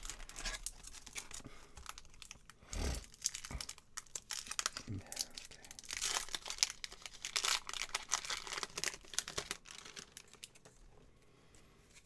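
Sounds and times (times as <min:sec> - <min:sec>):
foil wrapper crinkling: 0:00.0 - 0:10.9.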